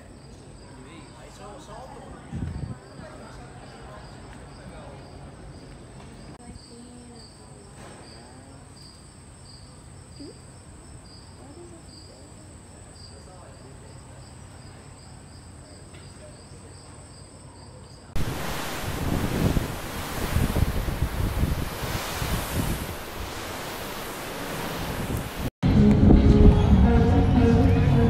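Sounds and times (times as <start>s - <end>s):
crickets chirping: 0.0s - 25.6s
wind buffeting microphone: 2.3s - 3.0s, 18.2s - 26.8s.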